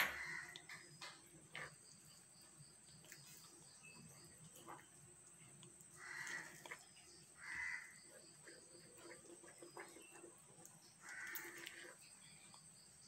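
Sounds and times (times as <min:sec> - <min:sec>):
faint crow cawing: 0:00.0 - 0:00.9, 0:05.9 - 0:06.8, 0:07.4 - 0:08.1, 0:11.0 - 0:11.9
spatula stirring batter in bowl: 0:00.1 - 0:13.0.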